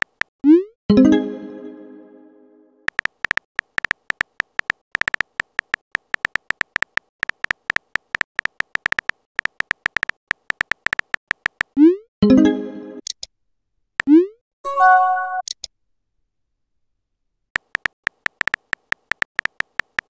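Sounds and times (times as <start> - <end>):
high typing ticks: 2.9 - 11.8, 17.6 - 20.0.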